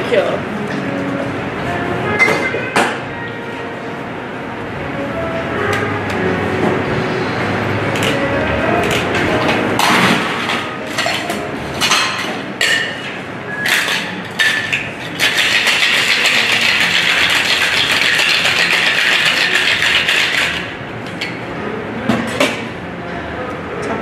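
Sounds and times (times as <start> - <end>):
ice and glassware clinking: 9.8 - 20.7
ice rattling in shaker: 13.7 - 20.7.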